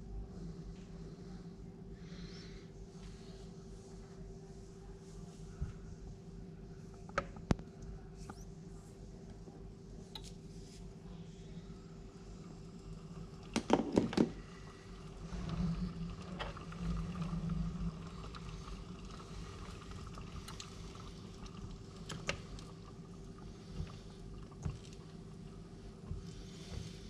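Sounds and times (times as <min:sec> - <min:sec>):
faint hum: 0:00.0 - 0:27.0
espresso machine rumble: 0:06.7 - 0:27.0.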